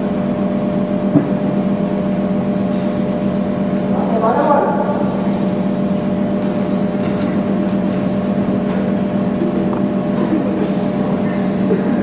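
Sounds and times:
steady low drone hum: 0.0s - 12.0s.

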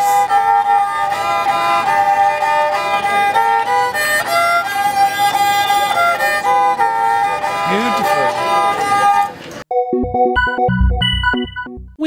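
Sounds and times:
bowed fiddle melody: 0.0s - 9.4s.

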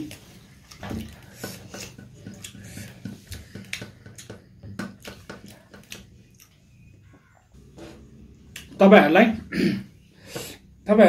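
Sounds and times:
wet chewing: 0.0s - 7.4s.

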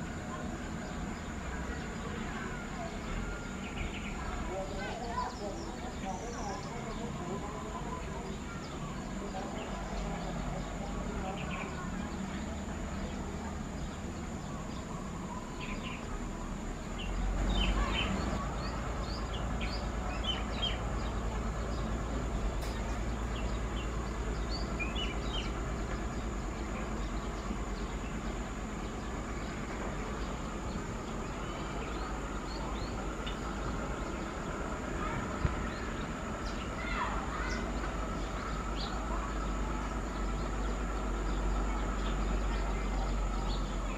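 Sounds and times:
distant tractor engine rumbling: 0.0s - 43.9s
small birds chirping: 0.0s - 43.9s.

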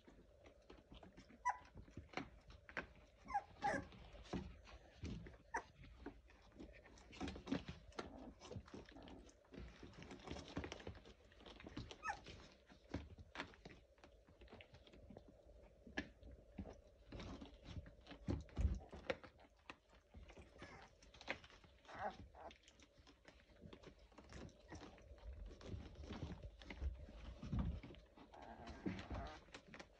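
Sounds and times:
puppies clicking and scratching: 0.0s - 29.9s
puppy squeak: 1.4s - 1.7s, 3.2s - 3.9s, 11.9s - 12.3s.

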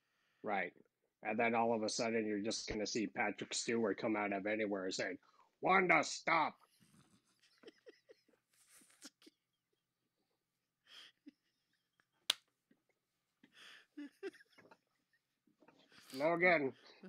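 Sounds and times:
breathy laughter: 7.4s - 8.4s, 13.4s - 16.0s.

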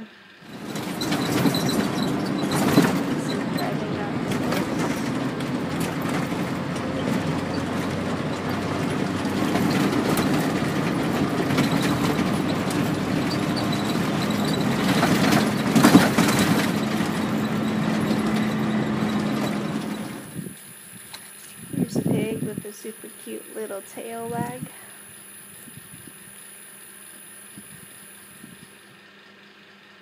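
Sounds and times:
car engine and tyre hum: 0.2s - 20.6s
knocks from a bump: 0.5s - 20.2s
cabin rattling: 0.5s - 20.3s.

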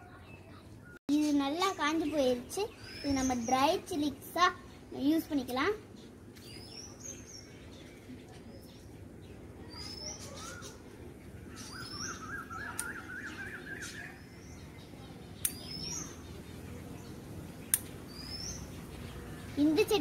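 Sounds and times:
bird high rising whistle: 11.7s - 14.2s.

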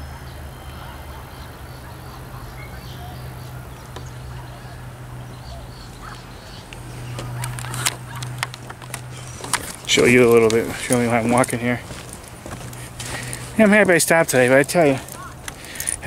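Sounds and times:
steady low hum: 0.0s - 16.0s
footsteps: 6.7s - 16.0s.

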